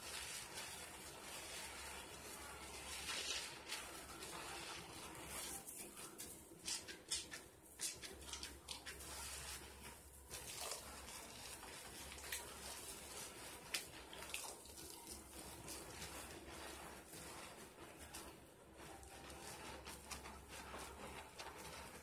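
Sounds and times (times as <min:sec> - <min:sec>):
soap lather squishing: 0:00.0 - 0:22.0.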